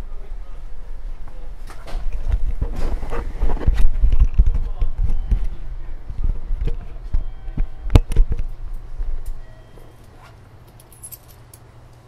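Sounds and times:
train equipment humming: 0.0s - 12.0s.

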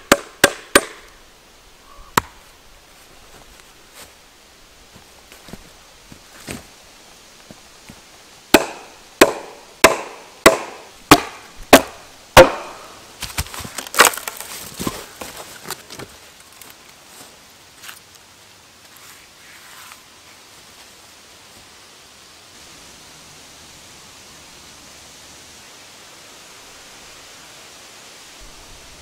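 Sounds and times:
wooden mallet knocking wedges: 8.5s - 12.8s
log cracking and splintering: 8.6s - 16.8s.

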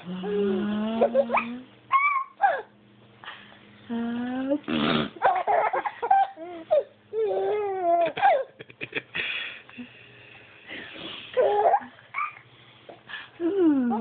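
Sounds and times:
baby cooing and squealing: 1.1s - 2.7s, 6.2s - 8.4s.

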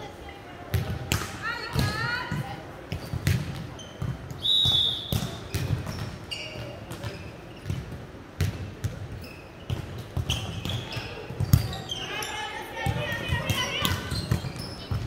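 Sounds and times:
volleyball struck and bouncing on court: 0.7s - 11.8s
referee's whistle blast: 4.4s - 5.4s.

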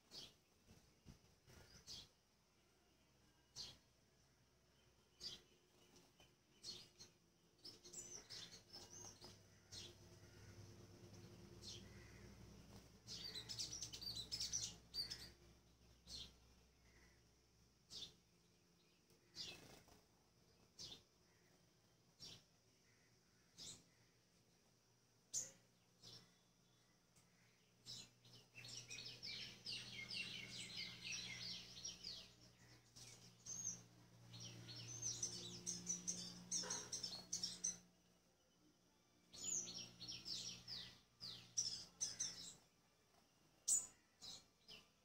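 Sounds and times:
bird twittering chirps: 6.6s - 15.4s, 27.4s - 37.8s, 39.3s - 42.6s.

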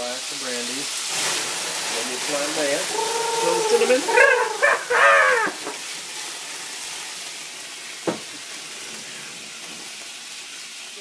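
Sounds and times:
bananas sizzling in skillet: 0.0s - 11.0s
person speaking: 2.9s - 5.6s.

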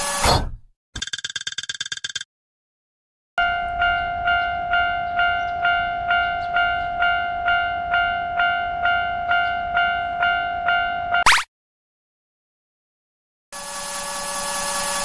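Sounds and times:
railroad crossing bell ringing: 3.4s - 11.2s.

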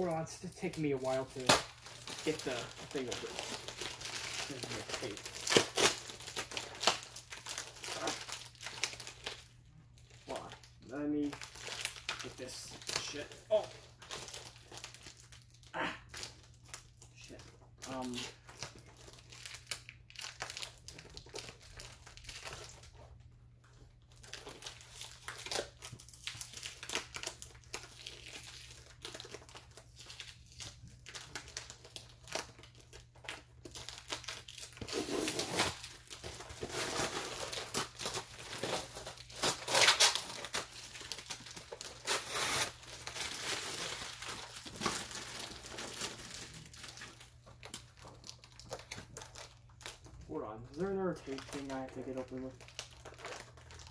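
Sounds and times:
packing tape peeling and tearing: 0.6s - 9.5s, 24.2s - 50.1s.

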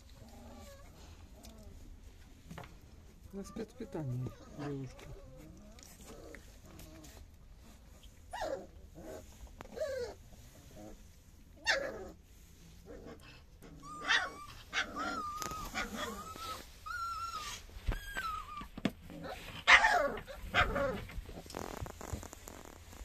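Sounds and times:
puppies whimpering: 3.3s - 6.4s, 13.6s - 21.0s.

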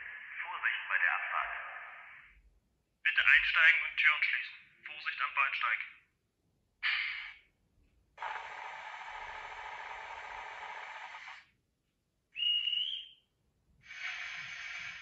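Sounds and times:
model locomotive sound burst: 8.2s - 11.4s, 13.9s - 15.0s
steady hiss: 8.2s - 11.4s, 13.8s - 15.0s
short high whistle: 12.4s - 13.2s.

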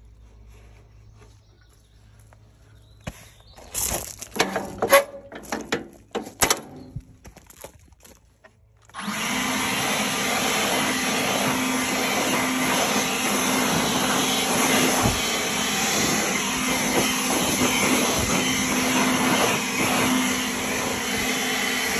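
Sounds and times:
knocks and scraping of sawdust: 0.0s - 9.0s, 10.8s - 20.4s
blower humming: 8.8s - 21.9s.

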